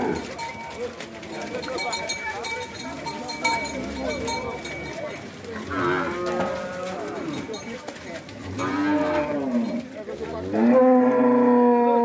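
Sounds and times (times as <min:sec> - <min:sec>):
cattle mooing: 0:05.5 - 0:07.6, 0:08.4 - 0:09.8, 0:10.4 - 0:12.0.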